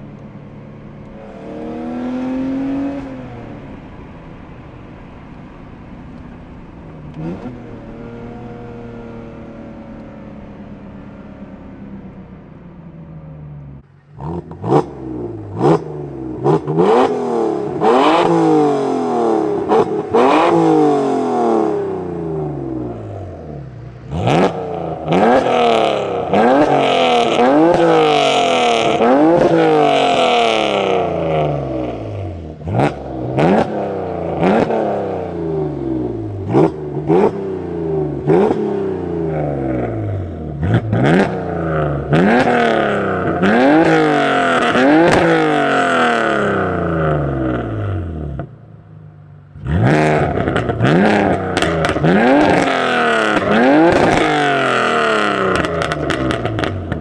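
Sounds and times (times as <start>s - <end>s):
car engine revving: 0.0s - 57.0s.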